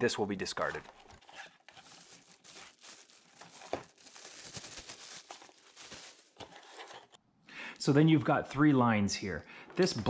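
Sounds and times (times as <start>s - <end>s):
plastic wrapping crinkling and tearing: 0.4s - 7.1s.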